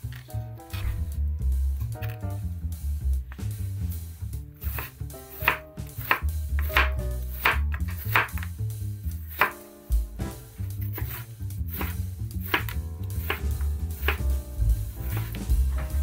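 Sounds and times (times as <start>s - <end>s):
background music: 0.0s - 16.0s
knife slicing cucumber on board: 4.6s - 8.5s, 9.3s - 9.6s, 10.8s - 14.2s.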